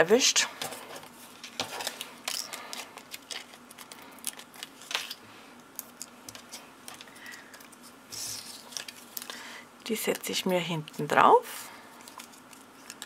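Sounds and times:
paper rustling: 5.8 - 9.4.

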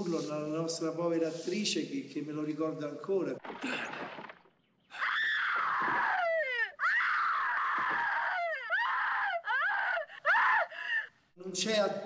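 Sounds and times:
woman screaming in terror: 4.9 - 11.1.

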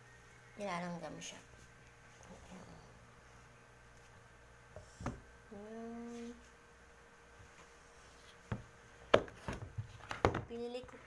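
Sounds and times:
woman humming: 5.5 - 6.5
plastic container knocking on table: 8.5 - 10.5.

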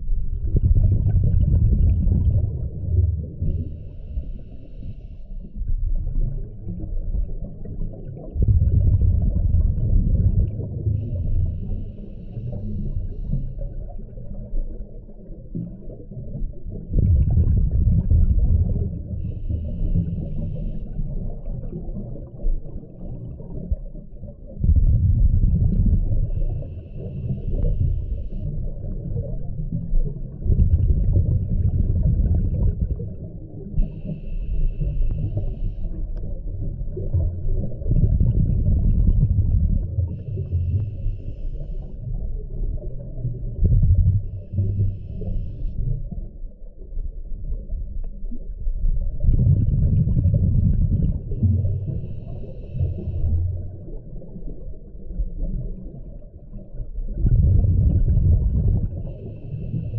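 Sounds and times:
rumble of exhaled bubbles: 0.0 - 59.9
regulator hiss on inhale: 3.4 - 5.6, 11.0 - 13.9, 19.2 - 21.3, 26.3 - 28.9, 33.8 - 36.3, 40.1 - 42.2, 44.3 - 45.9, 51.6 - 53.6, 59.0 - 59.9.

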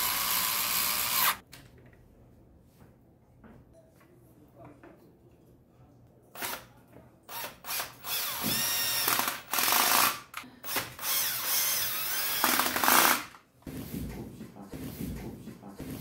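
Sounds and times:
cordless drill driving into wood: 0.0 - 1.4, 7.3 - 13.4.

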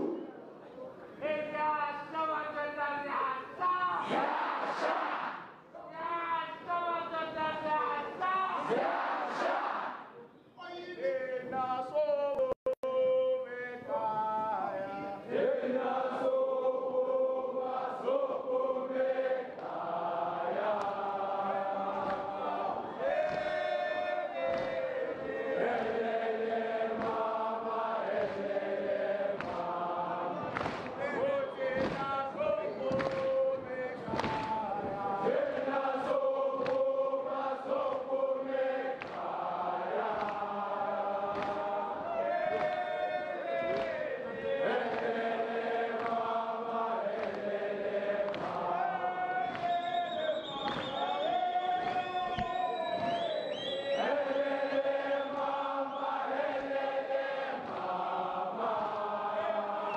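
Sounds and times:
male voices chanting and singing: 1.2 - 59.9.

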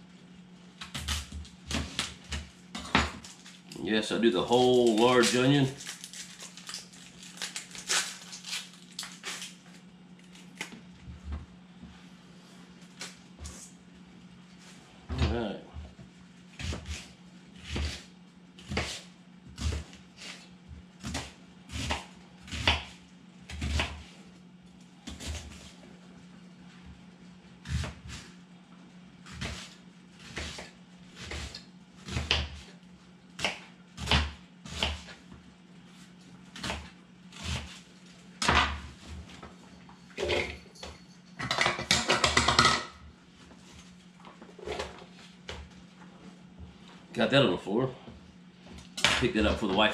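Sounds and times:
knife chopping onion on board: 18.6 - 19.9, 21.0 - 24.0, 29.3 - 32.7, 33.4 - 35.2.

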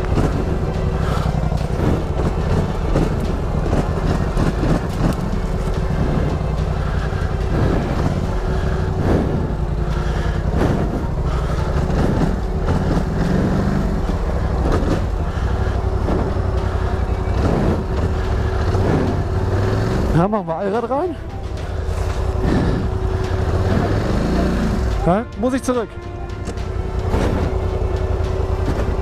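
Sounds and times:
atv engine running at low revs: 0.0 - 29.0
knocks from vehicle bumping: 26.3 - 29.0.

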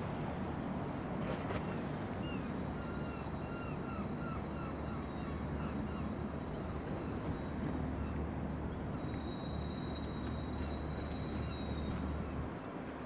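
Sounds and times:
ship engine low rumble: 0.0 - 13.0.

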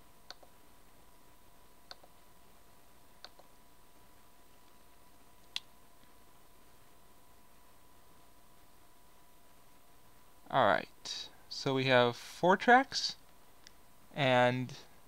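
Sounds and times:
faint steady electrical tone: 0.0 - 15.0
computer mouse clicks: 0.2 - 0.5, 1.9 - 2.2, 3.2 - 3.5.

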